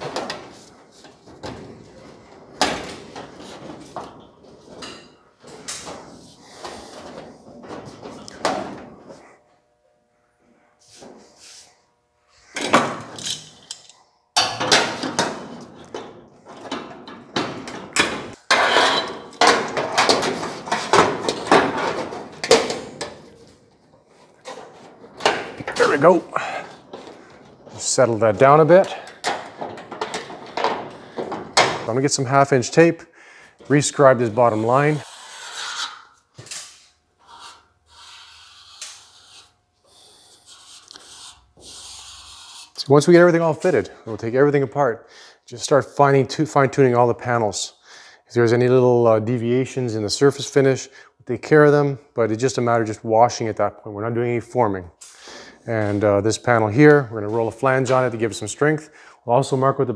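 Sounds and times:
sheet metal clanking and rattling: 0:14.4 - 0:23.4, 0:24.4 - 0:32.7.

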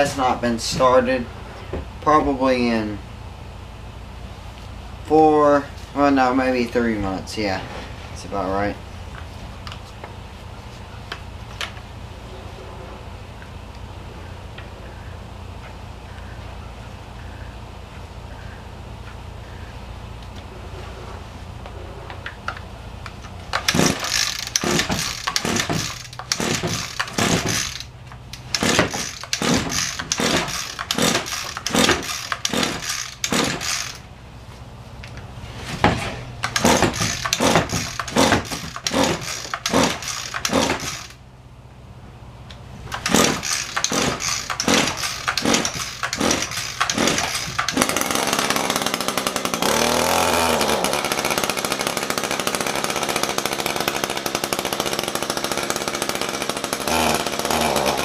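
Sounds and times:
starter cord pulls: 0:23.0 - 0:34.0, 0:36.0 - 0:41.2, 0:42.9 - 0:49.8
string trimmer engine running: 0:23.1 - 0:34.1, 0:36.2 - 0:41.2, 0:42.8 - 0:58.0.

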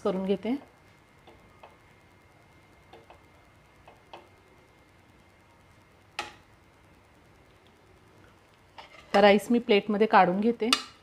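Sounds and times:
metal spoon stirring rice: 0:08.7 - 0:09.3.

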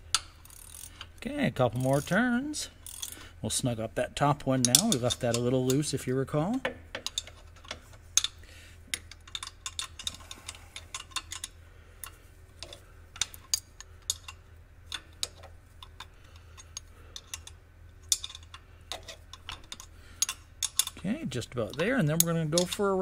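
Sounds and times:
wrench clicking on bolt: 0:02.8 - 0:03.2, 0:19.3 - 0:21.0, 0:21.6 - 0:23.0.

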